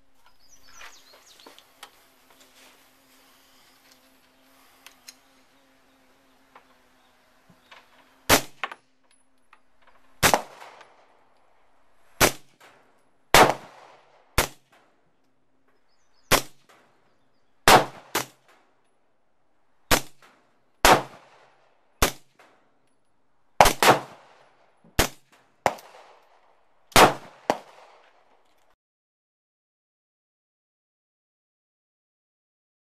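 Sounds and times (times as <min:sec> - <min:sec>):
suppressed rifle shots: 0:08.3 - 0:08.8, 0:10.2 - 0:11.2, 0:12.2 - 0:14.6, 0:17.6 - 0:18.4, 0:20.8 - 0:22.2, 0:23.6 - 0:24.4, 0:25.0 - 0:26.3, 0:26.9 - 0:28.2.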